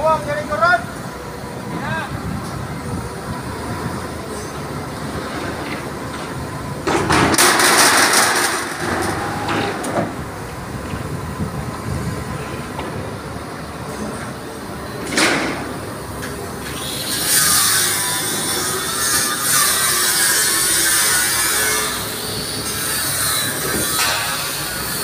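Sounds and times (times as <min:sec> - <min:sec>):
crane engine humming: 0:00.0 - 0:25.0.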